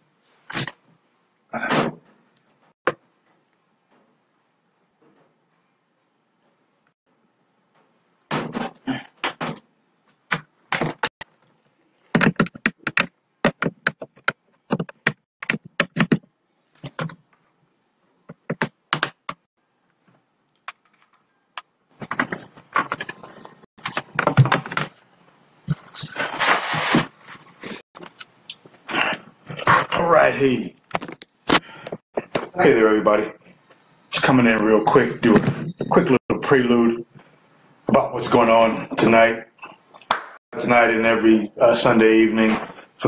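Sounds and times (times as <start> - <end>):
rustling and bumping: 21.9 - 28.2.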